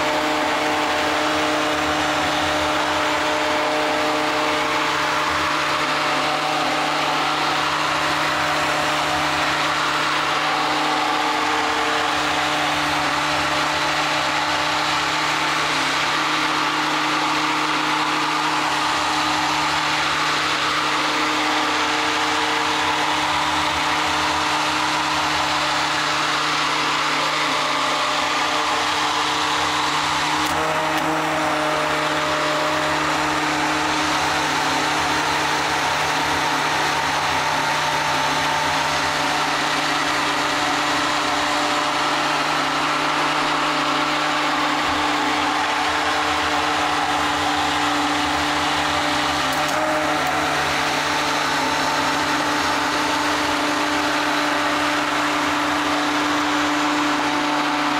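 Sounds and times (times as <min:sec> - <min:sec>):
immersion blender humming: 0:00.0 - 0:57.9.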